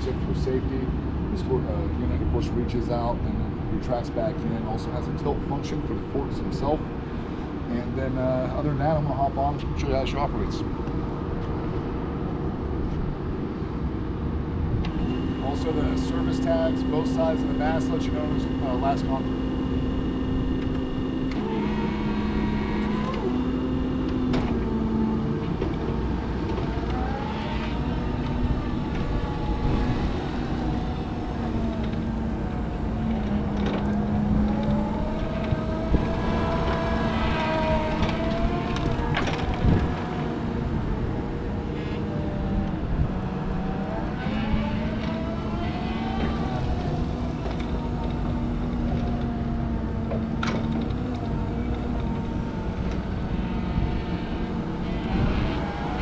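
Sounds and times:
low hum: 0:05.9 - 0:56.0
electric drive whining: 0:14.6 - 0:56.0.

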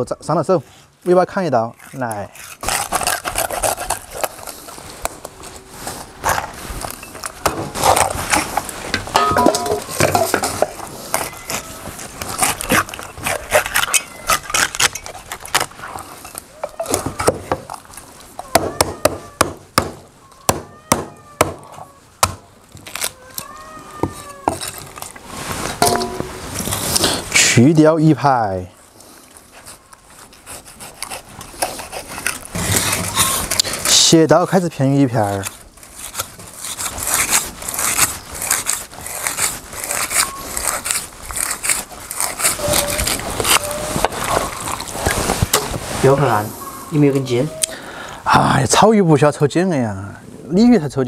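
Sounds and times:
cleaver chopping on wooden block: 0:18.5 - 0:22.4.

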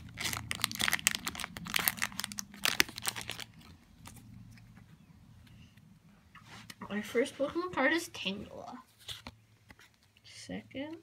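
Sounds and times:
foil wrapper crinkling: 0:00.0 - 0:04.2.

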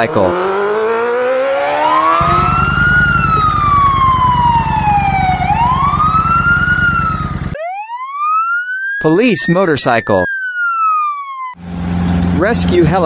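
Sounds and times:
motorcycle siren wailing: 0:00.0 - 0:13.0
low engine rumble: 0:02.2 - 0:07.6, 0:11.6 - 0:13.0.

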